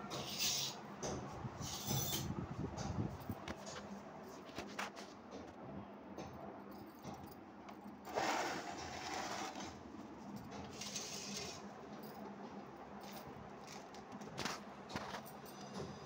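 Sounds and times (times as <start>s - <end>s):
scraping and handling noises: 3.2s - 5.5s, 8.0s - 15.9s.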